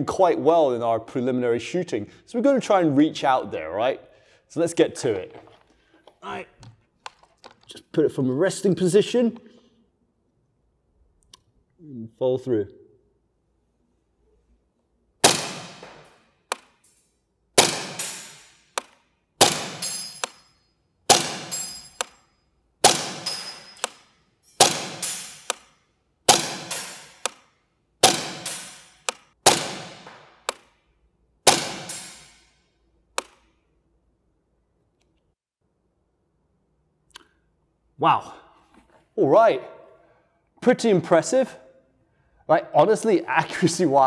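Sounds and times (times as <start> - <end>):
airsoft gun shots: 15.2 - 16.7, 17.6 - 20.4, 21.1 - 22.1, 22.8 - 25.7, 26.3 - 27.4, 28.0 - 30.7, 31.5 - 32.4
sharp click: 22.9 - 30.7.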